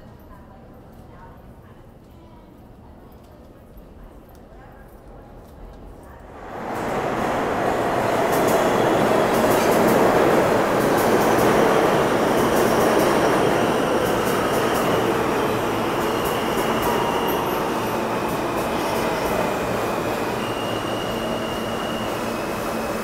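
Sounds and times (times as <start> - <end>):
subway train wheels rumbling: 5.6 - 23.0
rail clicks: 6.3 - 23.0.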